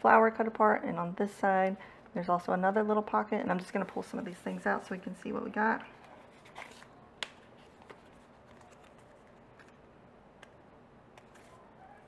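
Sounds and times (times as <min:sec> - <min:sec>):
paper rustling: 0:06.0 - 0:09.8, 0:11.2 - 0:11.7.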